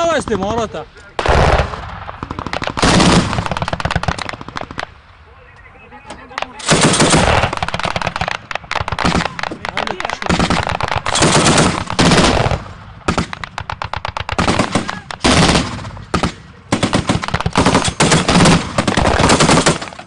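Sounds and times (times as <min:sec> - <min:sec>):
single gunshots: 0:01.2 - 0:05.0, 0:06.3 - 0:20.0
machine-gun bursts: 0:02.3 - 0:04.8, 0:06.6 - 0:20.0.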